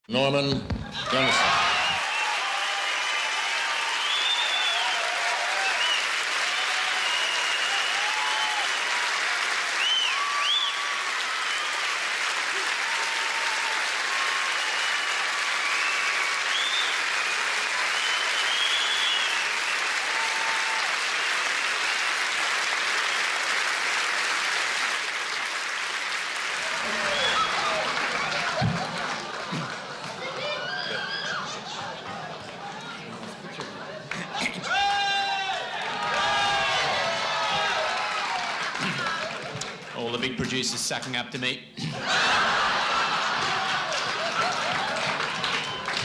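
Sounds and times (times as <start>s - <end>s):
scattered cheers: 1.0s - 22.1s, 26.5s - 31.8s, 34.3s - 39.6s, 42.1s - 46.0s
audience applauding: 1.1s - 40.7s, 42.0s - 46.0s.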